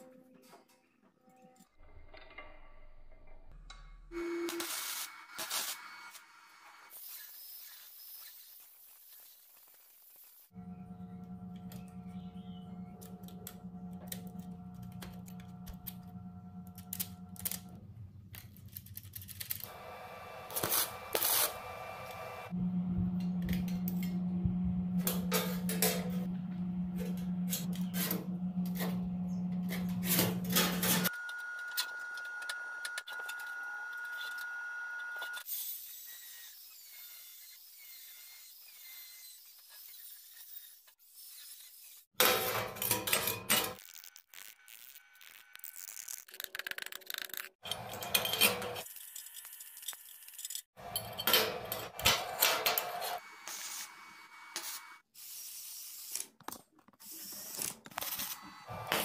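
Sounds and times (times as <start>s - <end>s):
steady hum: 10.6s - 18.8s, 19.6s - 31.1s
metal parts and tools clicking: 13.0s - 19.7s, 42.2s - 53.2s.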